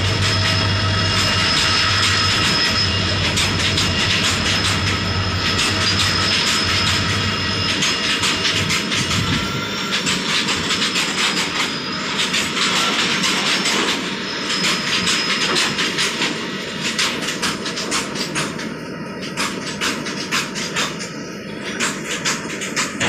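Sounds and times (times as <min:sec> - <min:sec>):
train wheels clattering over rail joints: 0:00.0 - 0:23.0
thin wheel squeals: 0:00.1 - 0:16.8.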